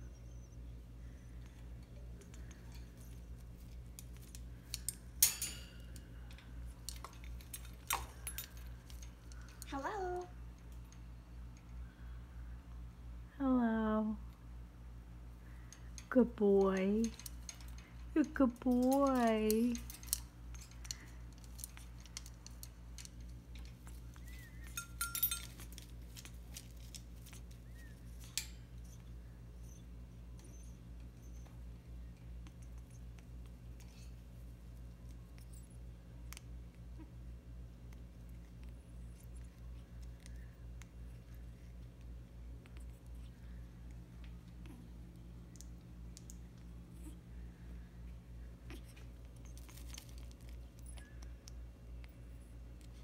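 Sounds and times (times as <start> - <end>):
beak and claws clicking on metal: 2.2 - 9.7, 16.7 - 28.8
sharp metallic clink: 5.2 - 5.9, 24.5 - 25.6.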